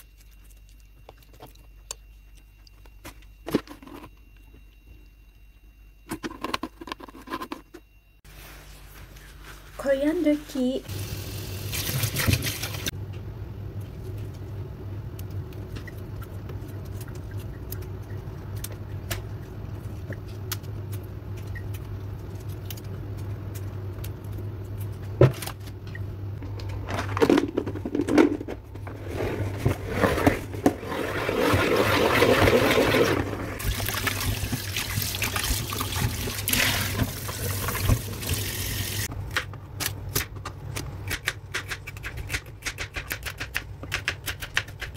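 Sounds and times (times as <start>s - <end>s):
steady low hum: 12.5s - 31.2s.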